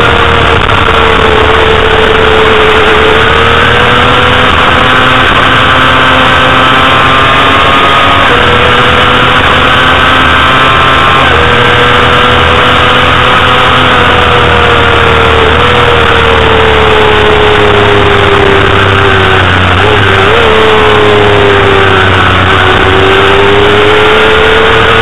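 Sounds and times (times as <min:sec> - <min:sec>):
motorcycle engine at high revs: 0:00.0 - 0:25.0.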